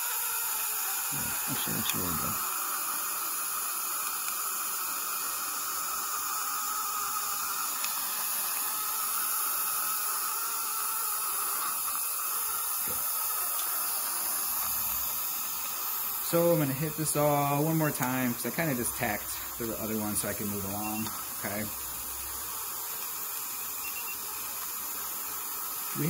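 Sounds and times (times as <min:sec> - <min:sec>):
dental suction hissing: 0:00.0 - 0:26.0.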